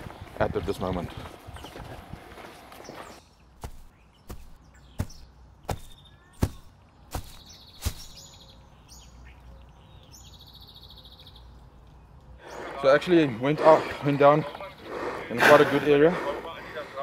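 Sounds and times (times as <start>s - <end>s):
birds chirping: 0.0s - 17.0s
sharp thuds: 3.6s - 8.2s.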